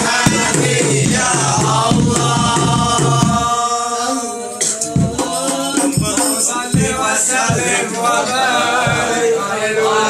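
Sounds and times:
hand-struck frame drums: 0:00.0 - 0:03.6, 0:04.6 - 0:07.9
men chanting together: 0:00.0 - 0:10.0.

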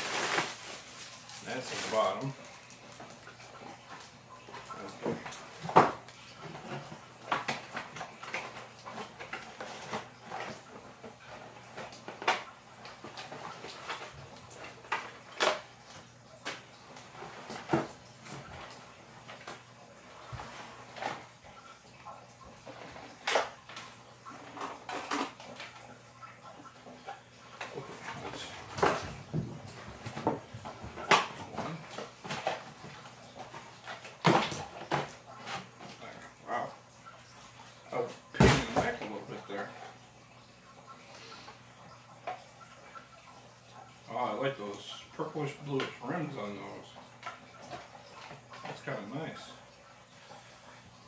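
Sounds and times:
cardboard rustling and scraping: 0:00.0 - 0:02.4.

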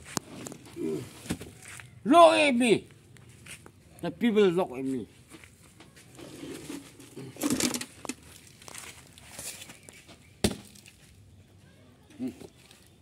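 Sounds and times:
tyre scraping on gritty ground: 0:05.4 - 0:11.1.

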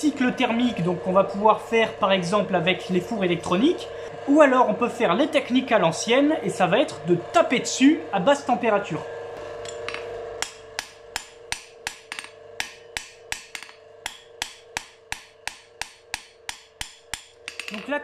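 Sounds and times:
hammer striking hot steel on anvil: 0:09.7 - 0:17.8.

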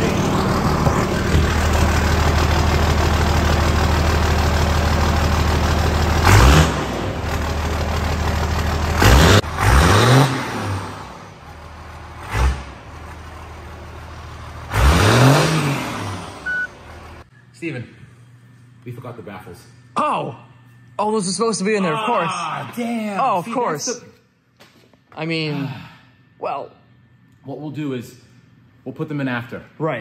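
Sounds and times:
truck engine idling and revving: 0:00.0 - 0:17.3.

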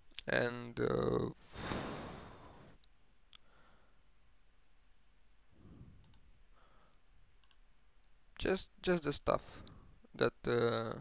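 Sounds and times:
faint mouse clicks: 0:06.0 - 0:06.3, 0:06.9 - 0:08.5.

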